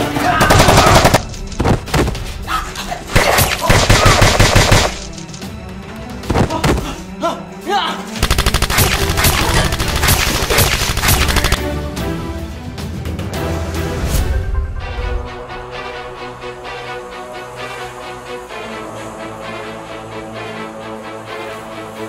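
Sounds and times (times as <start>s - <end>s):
background music: 0.0s - 22.0s
machine-gun fire: 0.4s - 1.3s, 3.2s - 5.1s, 8.2s - 11.6s.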